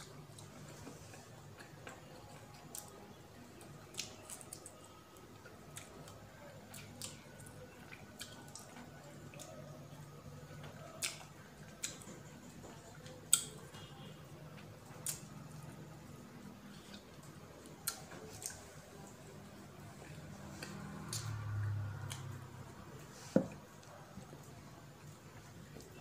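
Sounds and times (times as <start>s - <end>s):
person chewing: 3.6s - 9.6s, 10.7s - 13.9s, 14.9s - 15.3s, 16.7s - 19.2s, 19.9s - 22.4s.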